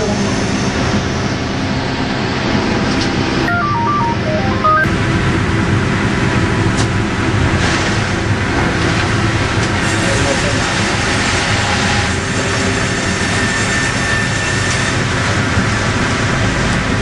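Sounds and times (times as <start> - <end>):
short electronic beeps: 3.4 - 4.9.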